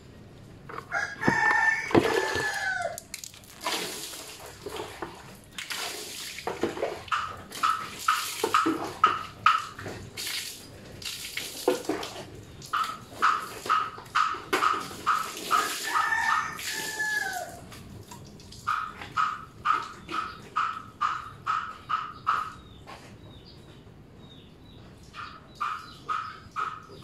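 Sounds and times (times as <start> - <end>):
rooster crowing: 0.8 - 3.0, 15.8 - 17.6
water splashing on tiles: 2.0 - 19.0.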